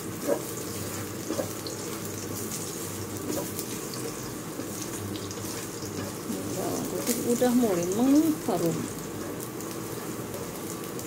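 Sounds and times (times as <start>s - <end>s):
garlic sizzling in hot oil: 0.0s - 11.0s
spatula scraping pan: 0.2s - 7.5s.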